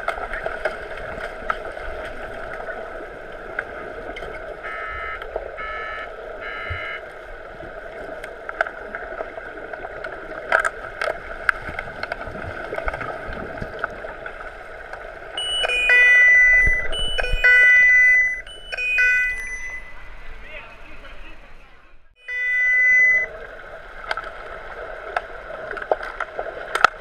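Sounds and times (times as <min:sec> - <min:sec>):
muffled underwater water noise: 0:00.0 - 0:27.0
short pitched beeps: 0:04.6 - 0:07.0, 0:15.4 - 0:20.2, 0:22.2 - 0:23.3.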